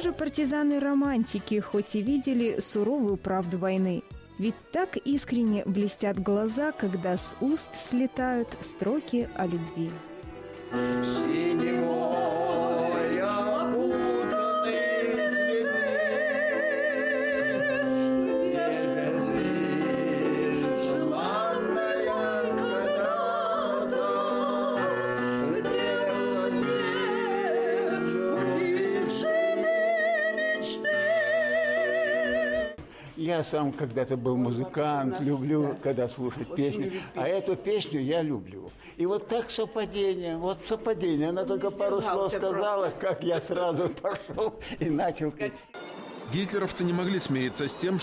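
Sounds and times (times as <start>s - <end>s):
elderly man singing: 10.8s - 23.0s, 25.4s - 29.4s
woman singing with vibrato: 11.5s - 32.8s.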